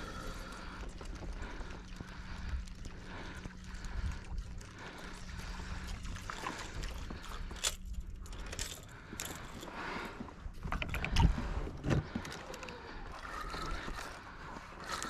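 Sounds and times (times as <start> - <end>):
water wash and rumble: 0.0 - 9.1
boat engine hum: 0.0 - 15.0.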